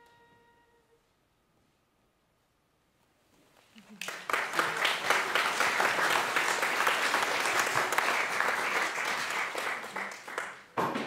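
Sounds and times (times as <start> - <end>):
audience applauding: 3.8 - 10.8.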